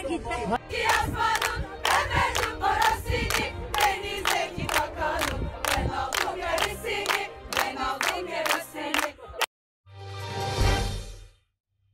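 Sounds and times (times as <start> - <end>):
women singing a chant: 0.6 - 9.4
hands clapping in time: 0.8 - 9.5.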